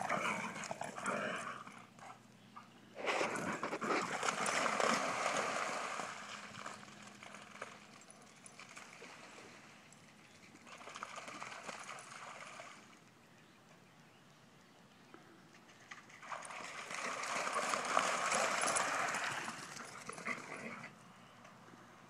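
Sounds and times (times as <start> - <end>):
dog paws splashing through puddles: 3.0 - 13.2, 15.9 - 20.5.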